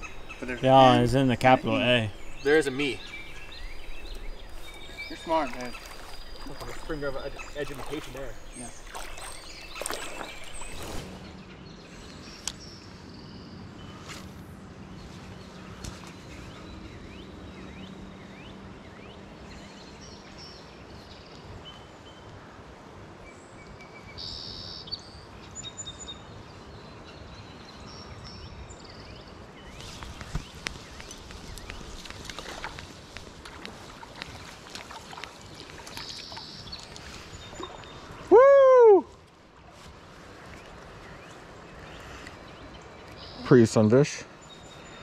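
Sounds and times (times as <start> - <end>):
running creek water: 0.0 - 11.3, 29.6 - 45.0
bird chirps: 0.0 - 14.0.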